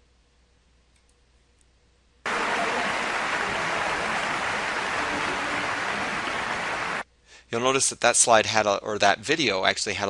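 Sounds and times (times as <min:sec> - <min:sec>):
audience applause: 0:02.3 - 0:07.0.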